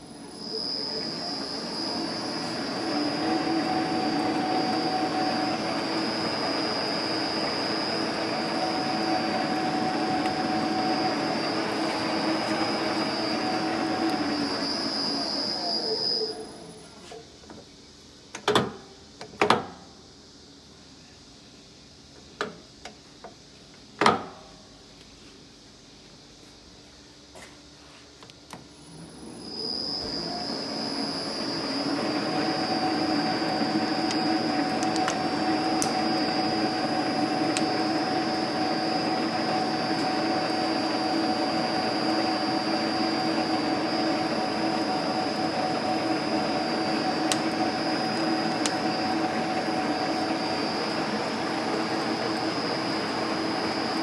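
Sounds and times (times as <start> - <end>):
metal lathe whining: 0.0 - 16.8, 28.9 - 54.0.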